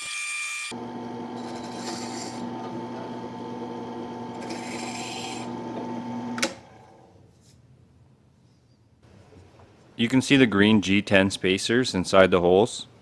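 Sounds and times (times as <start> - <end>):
drill press running: 0.7 - 7.1
drill bit cutting hiss: 1.3 - 2.7, 4.2 - 6.4
motor stopping click: 5.6 - 6.8.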